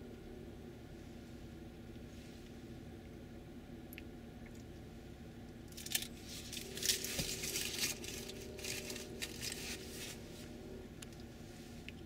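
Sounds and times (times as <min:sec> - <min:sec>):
distant machinery rumble: 0:00.0 - 0:12.0
faint steady hum: 0:00.0 - 0:12.0
crinkling rustling close to microphone: 0:05.7 - 0:10.6.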